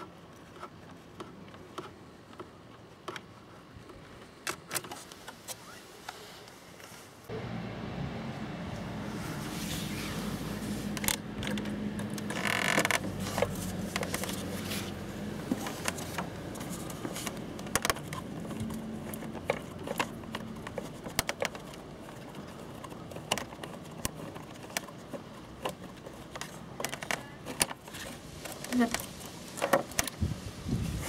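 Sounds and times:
scraping rustle: 0:08.8 - 0:31.0.

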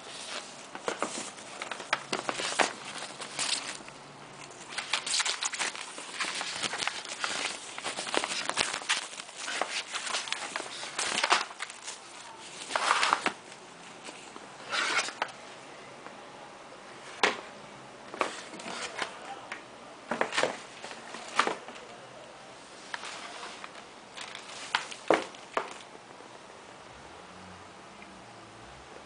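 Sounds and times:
packaging rustling and crinkling: 0:00.0 - 0:15.4, 0:22.8 - 0:25.9.

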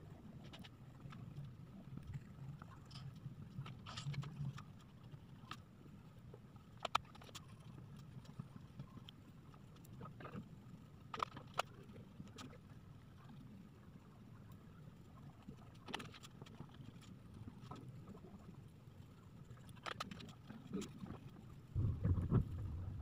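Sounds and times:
faint low hum: 0:20.4 - 0:23.0.

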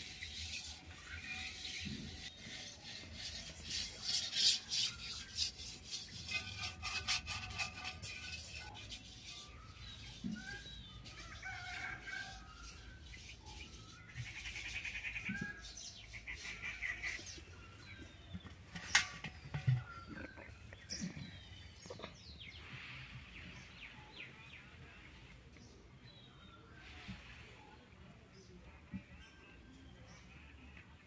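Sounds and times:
small birds chirping: 0:08.7 - 0:27.5.

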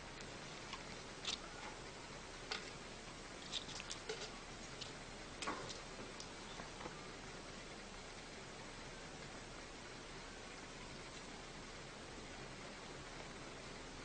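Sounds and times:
steady hiss: 0:00.0 - 0:14.0
cat paws clicking and scuffling: 0:03.4 - 0:06.8.

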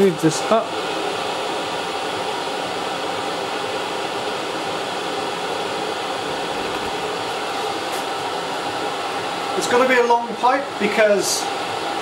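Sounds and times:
air heater running: 0:00.0 - 0:12.0.

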